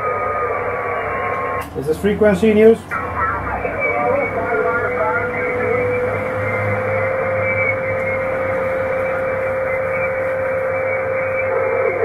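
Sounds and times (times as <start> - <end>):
radio band noise hiss: 0.0 - 12.0
steady carrier whistle: 3.6 - 12.0.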